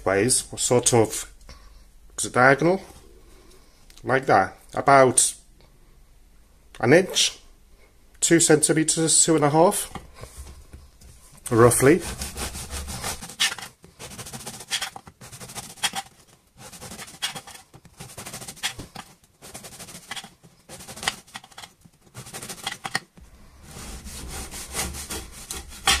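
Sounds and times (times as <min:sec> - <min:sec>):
knife sawing through bread crust: 0:11.7 - 0:23.0, 0:23.6 - 0:26.0.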